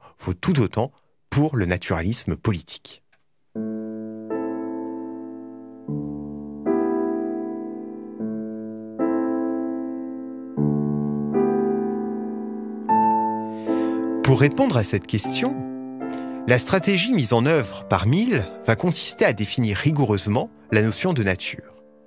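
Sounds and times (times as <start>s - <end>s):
keyboard chords: 3.5s - 22.0s.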